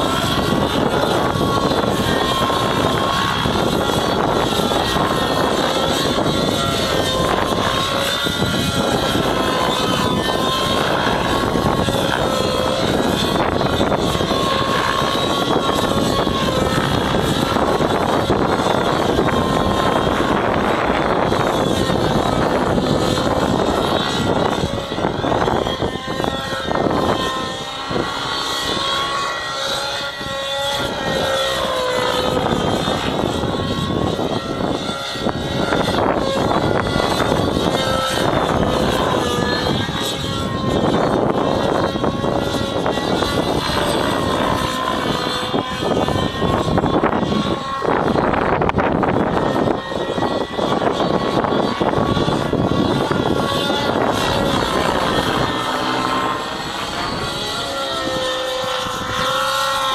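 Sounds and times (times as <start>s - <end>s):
rc helicopter engine whine: 0.0s - 59.9s.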